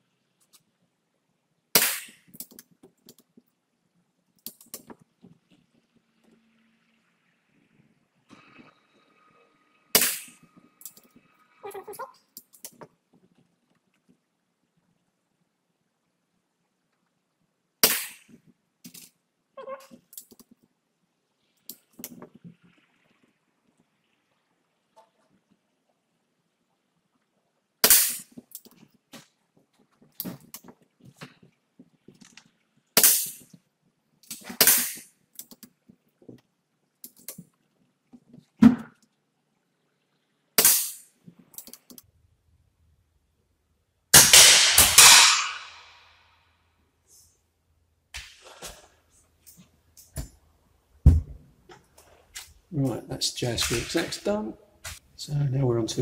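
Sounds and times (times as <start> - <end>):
air rifle shot: 44.2 - 45.9.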